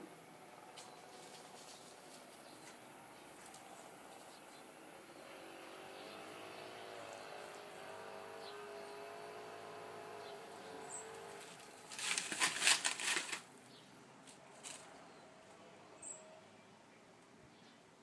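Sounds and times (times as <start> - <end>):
faint engine hum: 0.0 - 17.6
dry leaves rustling: 11.4 - 15.0.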